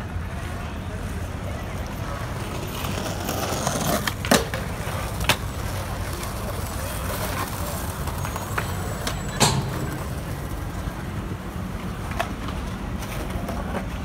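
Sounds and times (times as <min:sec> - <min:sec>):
city road traffic rumble: 0:00.0 - 0:14.0
sharp clack: 0:09.0 - 0:10.4.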